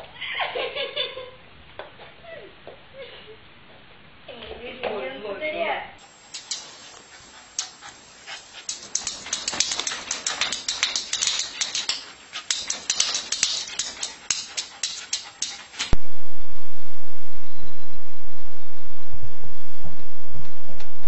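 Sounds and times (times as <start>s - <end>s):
loud steady hiss: 6.0s - 21.0s
faint hum: 14.0s - 21.0s.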